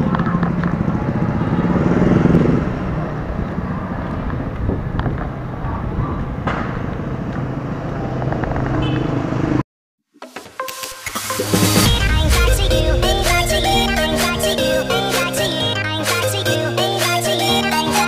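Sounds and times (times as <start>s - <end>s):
street traffic: 0.0s - 9.6s.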